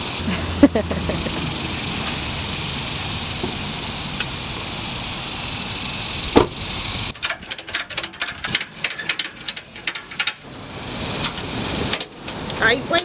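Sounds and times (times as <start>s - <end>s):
outdoor hiss: 0.0s - 13.0s
ratchet strap clicking: 5.4s - 13.0s.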